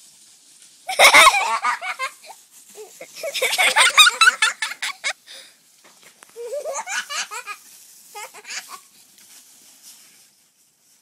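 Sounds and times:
person laughing: 0.9s - 5.2s, 6.4s - 7.6s.

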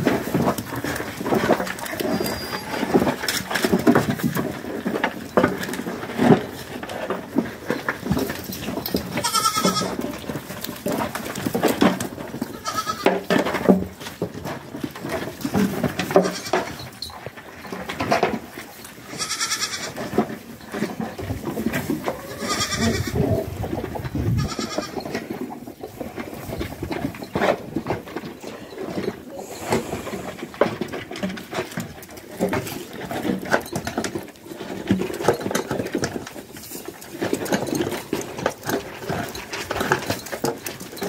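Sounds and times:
goats bleating: 9.2s - 10.0s, 12.5s - 13.2s, 19.1s - 20.0s, 22.1s - 23.2s, 24.4s - 25.0s.

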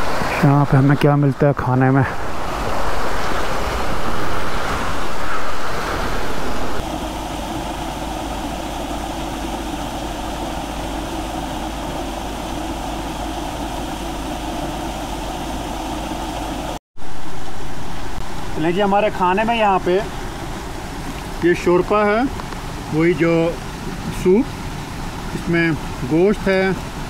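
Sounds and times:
small waterfall splashing: 16.7s - 27.0s.

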